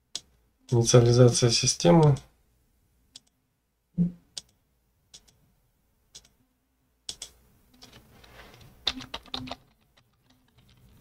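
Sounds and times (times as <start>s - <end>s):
computer mouse clicking: 4.4s - 5.4s, 6.1s - 6.4s, 7.1s - 11.0s
keyboard keystrokes: 7.1s - 8.0s, 8.8s - 10.9s.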